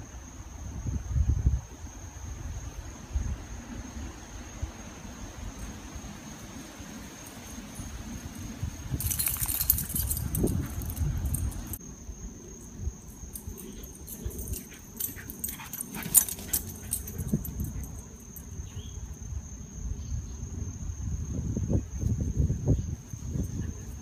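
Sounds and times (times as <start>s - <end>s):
sharp clicks and rustles: 9.0s - 11.8s.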